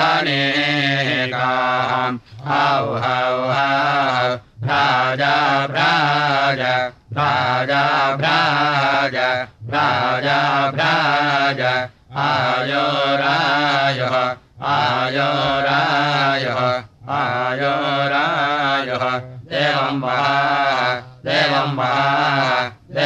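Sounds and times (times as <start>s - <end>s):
person chanting: 0.0s - 23.0s.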